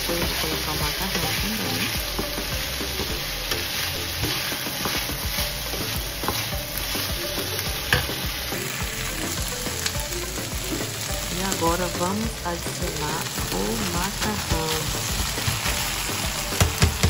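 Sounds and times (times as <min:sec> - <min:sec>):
potatoes sizzling in a frying pan: 0:00.0 - 0:17.0
spoon scraping and tapping pan: 0:01.1 - 0:06.5, 0:07.4 - 0:08.3.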